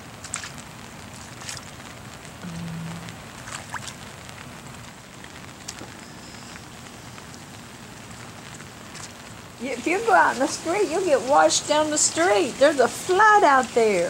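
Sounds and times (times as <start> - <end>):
heavy rain on standing water: 0.0 - 14.0
brief low hum: 2.4 - 3.2.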